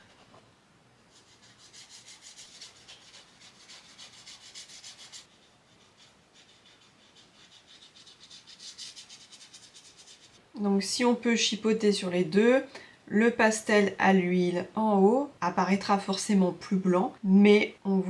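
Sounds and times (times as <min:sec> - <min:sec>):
candle rubbing on rough paper: 0:01.1 - 0:10.4.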